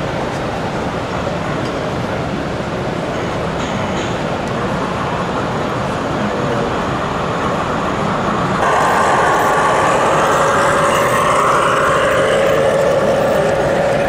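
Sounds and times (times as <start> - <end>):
busy hall background noise: 0.0 - 14.0
model train humming past: 4.2 - 14.0.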